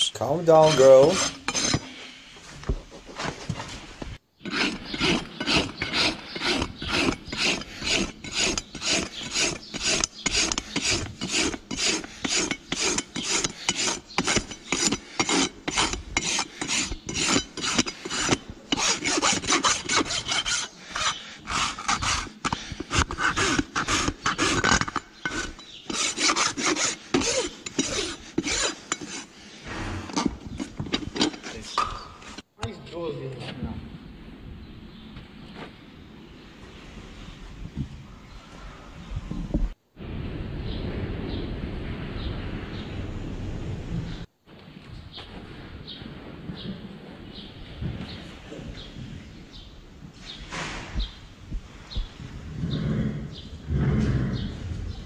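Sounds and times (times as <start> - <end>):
rasp filing horse hoof: 0.5 - 2.2, 4.4 - 32.4.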